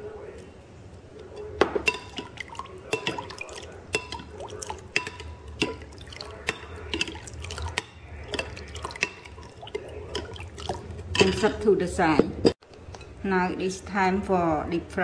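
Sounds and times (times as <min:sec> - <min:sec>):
liquid dripping and swishing: 0:00.2 - 0:11.5
spoon clinking against glass bowl: 0:01.2 - 0:11.6.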